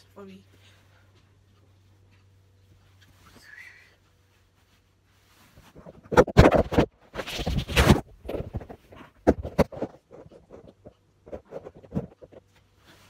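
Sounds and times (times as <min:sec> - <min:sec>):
phone handling rubbing noise: 0:05.6 - 0:12.5.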